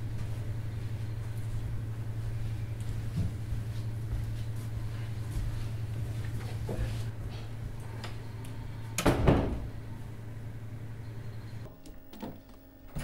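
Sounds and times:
low room hum: 0.0s - 13.0s
door banging shut: 9.0s - 9.7s.

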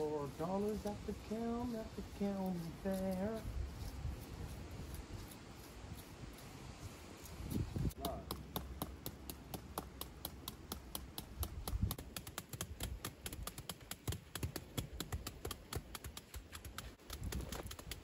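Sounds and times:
rapid light tapping: 7.9s - 18.0s.

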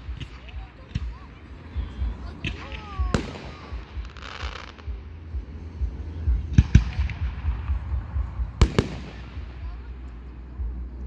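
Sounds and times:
fireworks crackling hiss: 0.0s - 5.6s
steady low rumble: 0.0s - 11.0s
sharp firework bangs: 2.4s - 4.8s, 8.6s - 9.5s.

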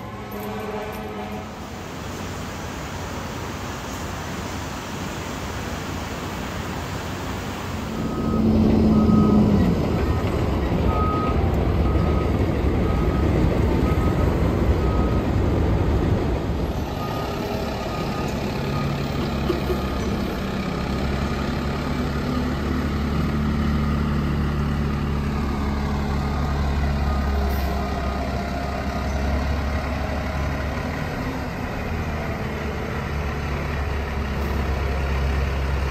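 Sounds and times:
diesel truck engines running: 0.0s - 35.9s
back-up alarm beeping: 7.9s - 15.2s.

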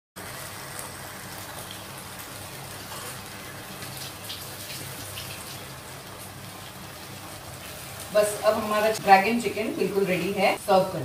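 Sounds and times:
stir-fry sizzling in a pan: 0.2s - 11.0s.

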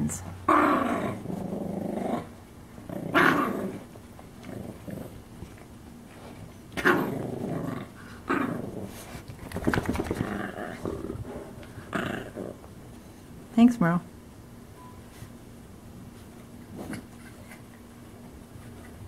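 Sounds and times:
small dog growling: 0.4s - 5.3s, 6.8s - 9.2s, 9.9s - 12.7s.

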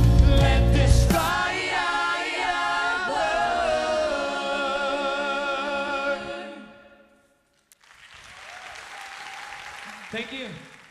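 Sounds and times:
singer and choir holding chord: 0.2s - 7.1s.

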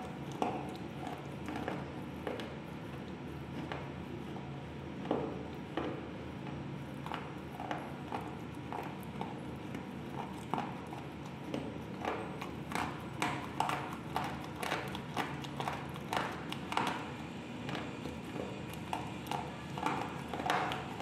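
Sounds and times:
slate pencil crunching when chewed: 8.1s - 17.1s.

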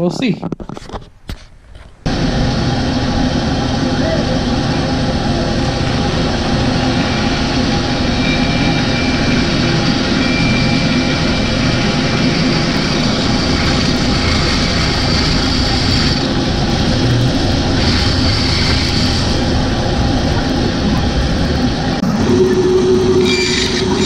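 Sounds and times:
bandsaw cutting: 12.8s - 16.4s, 17.8s - 19.4s, 23.2s - 24.0s.

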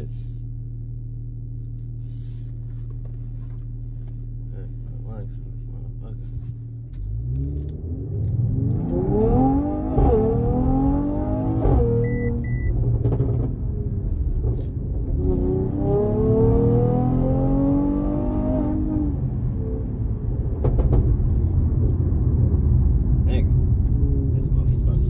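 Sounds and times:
car engine accelerating: 2.7s - 25.0s
short beeps: 12.0s - 12.7s.

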